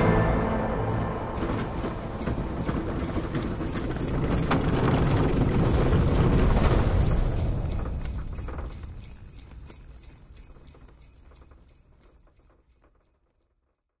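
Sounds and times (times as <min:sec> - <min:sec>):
soundtrack music: 0:00.0 - 0:03.5
sleigh bells jingling: 0:00.0 - 0:13.6.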